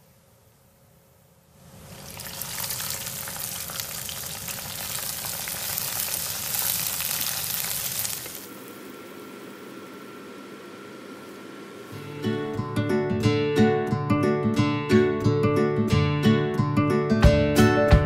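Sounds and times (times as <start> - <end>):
hot oil sizzling and crackling: 1.6 - 12.0.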